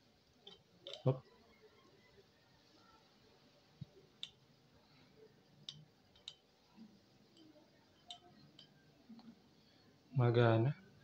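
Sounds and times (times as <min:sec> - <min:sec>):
faint plastic clicks: 0:00.4 - 0:01.2, 0:03.8 - 0:04.5, 0:05.5 - 0:09.4.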